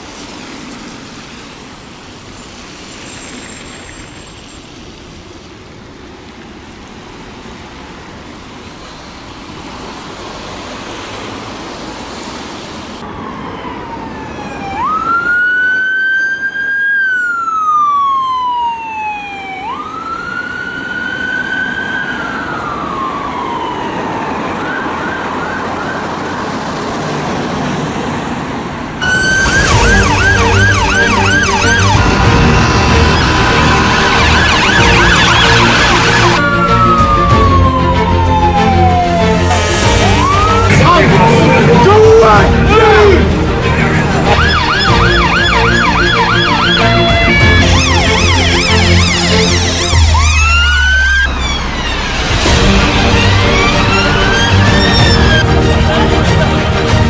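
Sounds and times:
road traffic noise: 0:00.0 - 0:57.0
emergency vehicle siren: 0:06.8 - 0:57.0.

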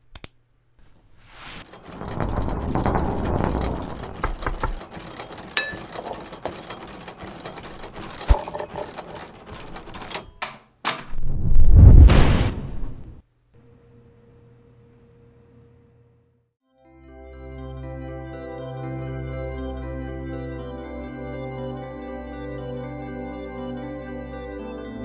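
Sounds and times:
machinery rumble with clattering: 0:01.6 - 0:10.4
loud low rumble: 0:01.8 - 0:04.8.

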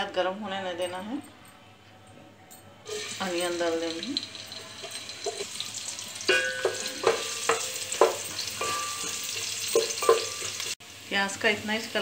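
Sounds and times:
onion sizzling in oil: 0:02.9 - 0:12.0
spatula scraping metal pot: 0:04.5 - 0:10.8.

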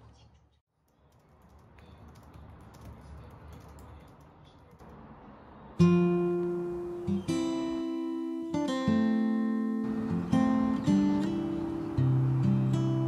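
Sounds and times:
laptop keyboard typing: 0:00.9 - 0:05.0
room hiss: 0:04.9 - 0:13.0
strummed acoustic guitar chords: 0:05.8 - 0:13.0.

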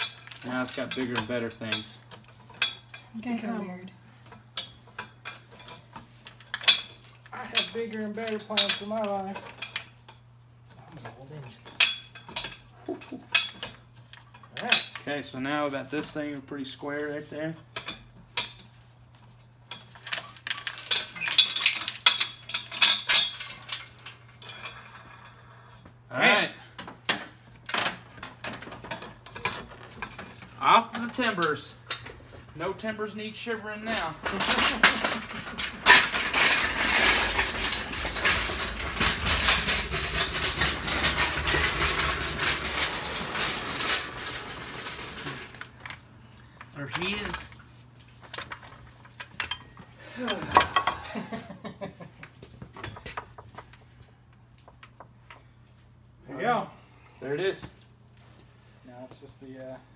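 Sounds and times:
steel chain clinking and rattling: 0:00.0 - 0:10.2, 0:19.6 - 0:25.3, 0:33.0 - 0:51.4, 0:54.5 - 0:55.9.

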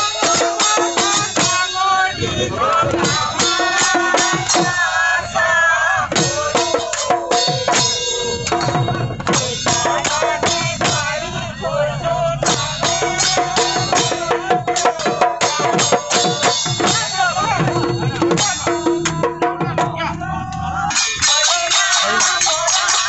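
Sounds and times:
group of people singing: 0:00.0 - 0:23.0
hand drum played with hands: 0:12.4 - 0:20.0.

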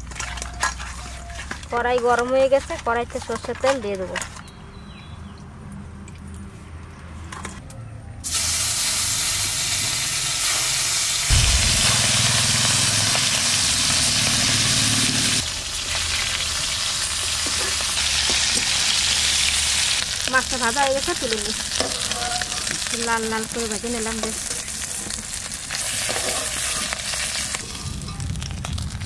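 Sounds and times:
fish sizzling in oil: 0:08.3 - 0:29.0
low rumble: 0:11.3 - 0:14.6.

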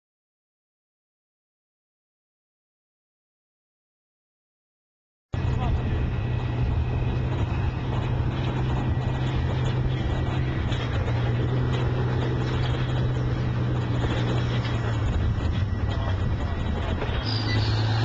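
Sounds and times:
deep engine drone: 0:05.4 - 0:18.0
tracks clanking: 0:05.4 - 0:18.0.

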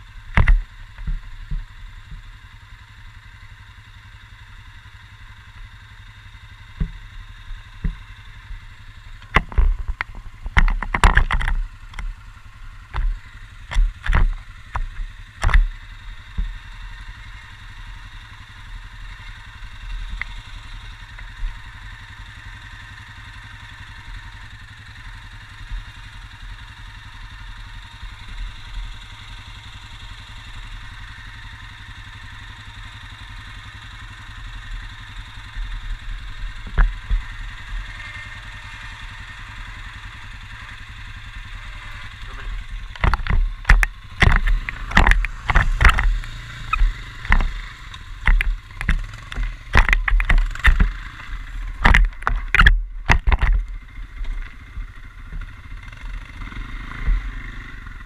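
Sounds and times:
quad bike engine running: 0:00.0 - 0:58.0
loud knocks and clatters: 0:48.2 - 0:50.9, 0:51.8 - 0:53.6.

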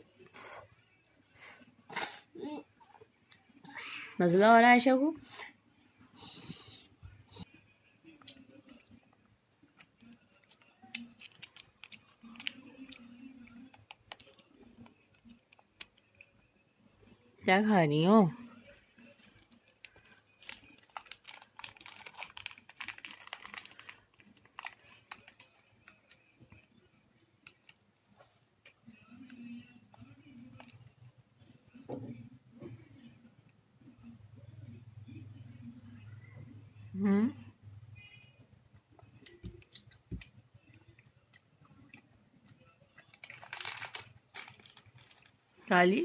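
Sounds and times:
plastic wrapper crinkling: 0:19.4 - 0:26.2, 0:43.1 - 0:45.4.

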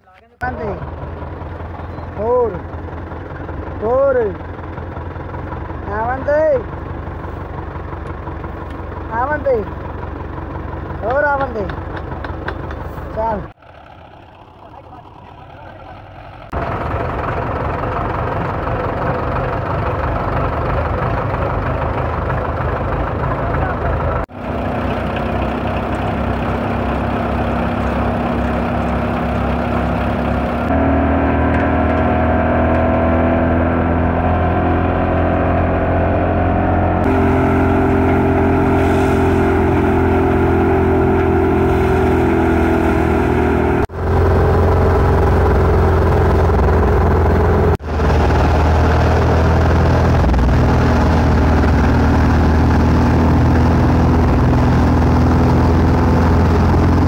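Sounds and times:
diesel tractor engine running: 0:00.4 - 0:57.0
threshing drum whirring: 0:24.3 - 0:57.0.

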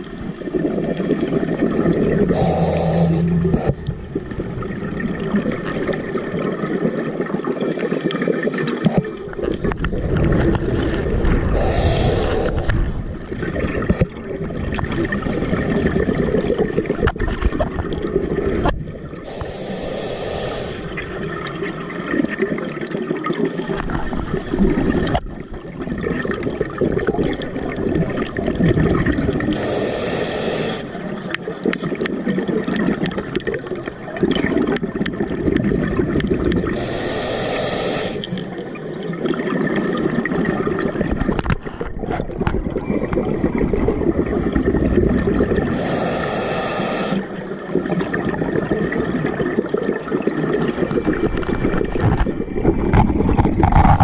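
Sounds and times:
exhaled bubbles gurgling underwater: 0:00.0 - 0:54.0
regulator inhale hiss: 0:02.3 - 0:03.8, 0:11.5 - 0:12.9, 0:15.1 - 0:16.5, 0:19.2 - 0:21.1, 0:29.5 - 0:31.2, 0:36.8 - 0:38.4, 0:45.7 - 0:48.2.

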